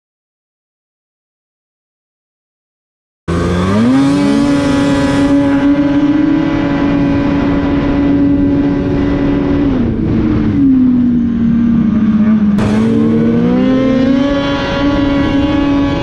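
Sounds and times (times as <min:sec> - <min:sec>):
snowmobile engine at full throttle: 0:03.3 - 0:16.0.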